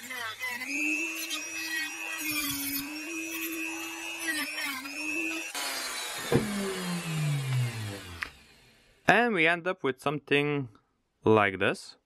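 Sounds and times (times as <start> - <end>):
rotary tool sanding metal: 0.0 - 8.8
knock: 6.3 - 6.6.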